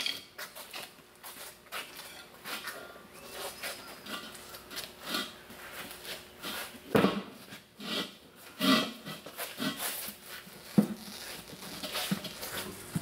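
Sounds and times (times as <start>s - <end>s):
rubber scuffing against wheel rim: 3.3s - 13.0s.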